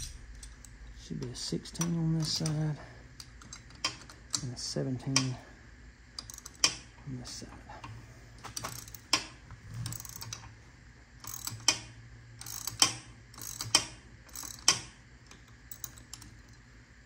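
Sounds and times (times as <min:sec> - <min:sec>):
ratchet wrench clicking: 0:00.0 - 0:00.8, 0:06.2 - 0:06.8, 0:08.5 - 0:10.4, 0:11.2 - 0:16.6.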